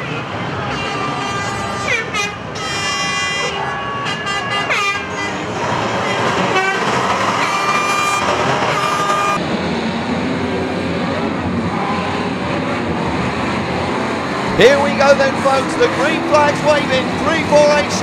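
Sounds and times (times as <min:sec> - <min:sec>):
race car engines revving: 0:00.0 - 0:18.0
car horns tooting: 0:00.5 - 0:09.4, 0:14.6 - 0:18.0.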